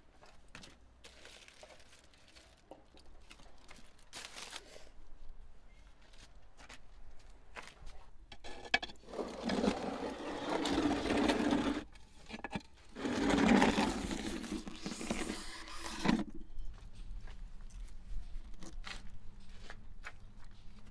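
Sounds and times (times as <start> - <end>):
clay pot scraping over brick: 8.4 - 16.5.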